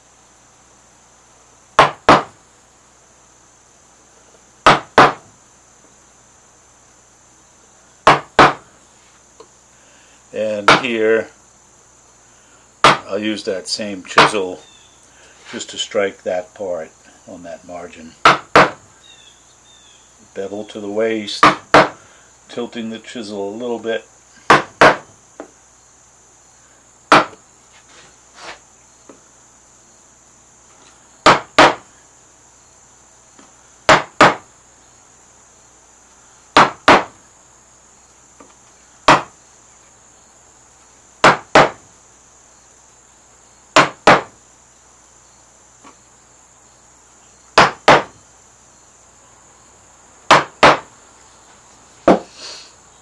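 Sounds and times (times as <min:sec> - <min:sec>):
mallet striking chisel into wood: 0:01.8 - 0:02.3, 0:04.7 - 0:05.2, 0:08.1 - 0:08.6, 0:12.8 - 0:13.1, 0:18.2 - 0:18.8, 0:21.4 - 0:22.0, 0:24.5 - 0:25.0, 0:27.1 - 0:27.4, 0:31.2 - 0:31.8, 0:33.9 - 0:34.4, 0:36.6 - 0:37.1, 0:39.1 - 0:39.3, 0:41.2 - 0:41.8, 0:43.8 - 0:44.3, 0:47.6 - 0:48.1, 0:50.3 - 0:50.9.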